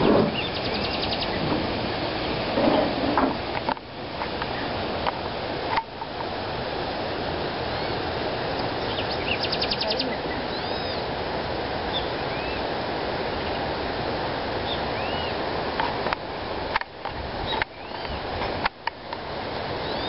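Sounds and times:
steady rushing noise: 0.0s - 19.9s
bird chirps: 0.3s - 1.4s, 8.8s - 11.0s, 14.7s - 15.4s
bird trill: 0.3s - 1.4s, 8.8s - 11.0s, 14.7s - 15.4s.

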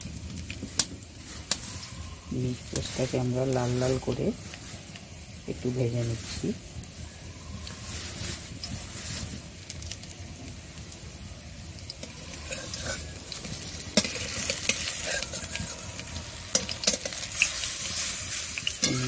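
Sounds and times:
fritters sizzling in oil: 0.0s - 19.0s
metal spatula scraping a pan: 11.9s - 19.0s.

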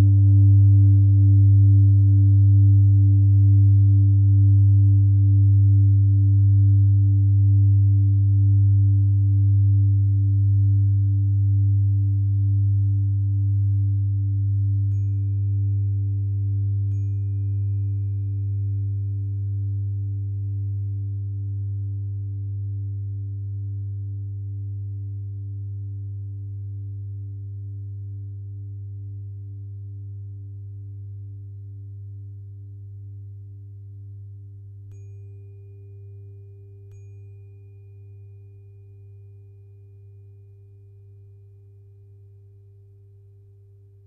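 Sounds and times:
tuning fork steady tone: 0.0s - 44.0s
singing bowl ringing: 14.9s - 19.4s, 34.9s - 43.0s.

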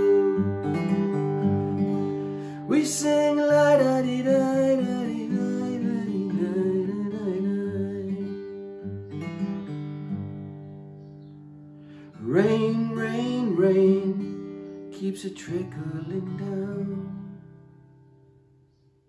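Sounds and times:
man singing wordless melody: 0.0s - 1.2s, 2.4s - 8.5s, 12.2s - 17.4s
acoustic guitar chords: 0.0s - 19.0s.

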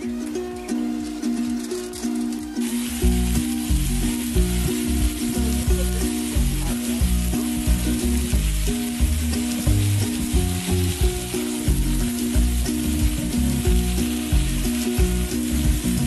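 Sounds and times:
chicken sizzling on griddle: 0.0s - 16.0s
music with pulsing bass: 0.0s - 16.0s.

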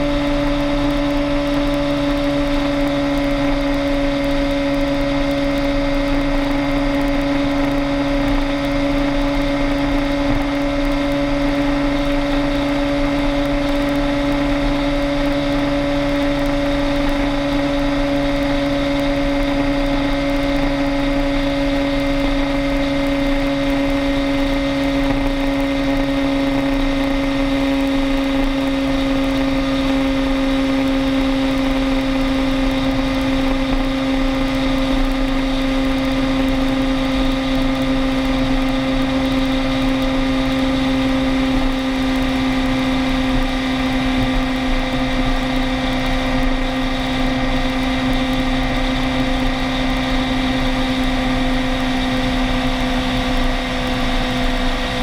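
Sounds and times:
road and wind noise: 0.0s - 55.0s
vehicle engine drone: 0.0s - 55.0s.

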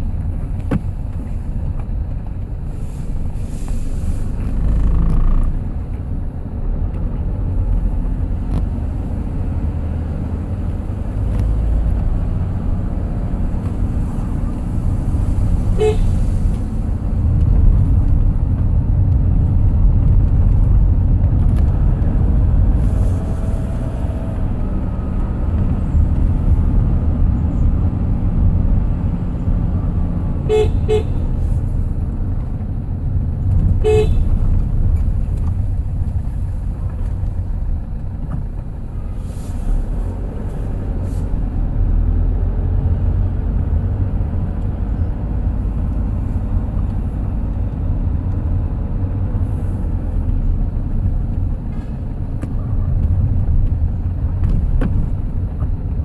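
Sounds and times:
road vehicle rumbling: 0.0s - 56.0s
vehicle horn tooting: 15.7s - 16.3s, 30.4s - 31.3s, 33.8s - 34.3s.

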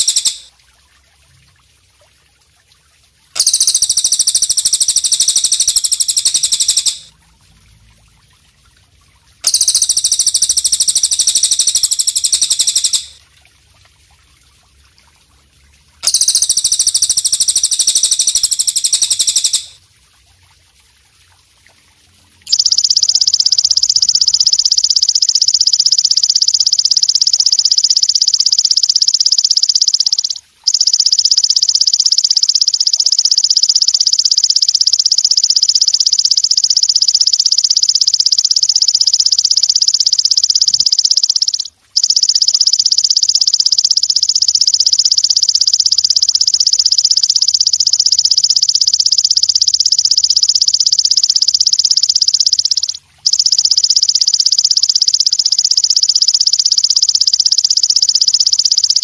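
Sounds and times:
katydid buzzing trills: 0.0s - 0.4s, 3.4s - 7.0s, 9.5s - 13.1s, 16.0s - 19.7s.

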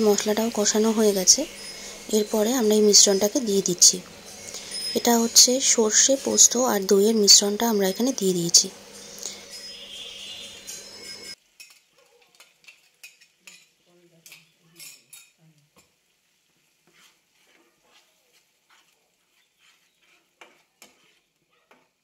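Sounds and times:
spatula scraping a frying pan: 0.1s - 15.9s, 16.5s - 22.0s
steady hiss: 8.2s - 11.4s.

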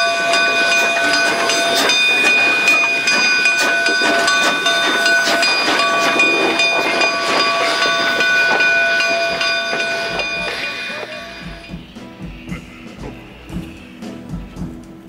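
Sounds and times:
high ringing tones: 0.0s - 14.1s
locomotive rumble: 0.0s - 15.0s
wheels clicking over rails: 0.0s - 15.0s
guitar music: 5.5s - 15.0s.

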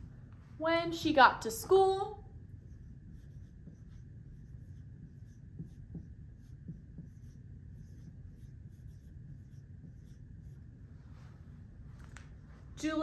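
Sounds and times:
marker scratching on whiteboard: 2.3s - 11.2s
marker squeaks: 2.5s - 10.6s.

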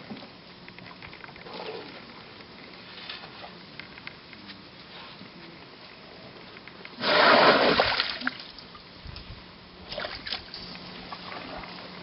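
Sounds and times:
elephant trunk splashing water: 7.0s - 8.4s.

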